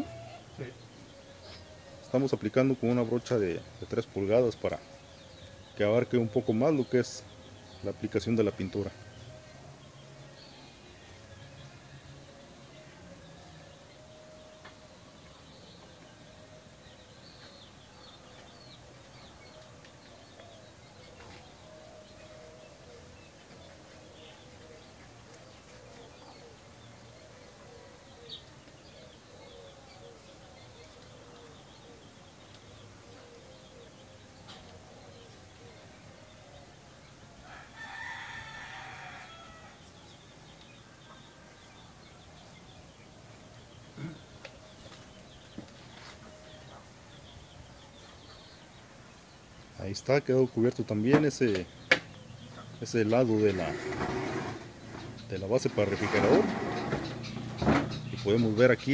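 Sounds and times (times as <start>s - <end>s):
rooster crowing: 0.0s - 0.6s, 37.4s - 39.9s
faint bird chirping: 0.0s - 58.9s.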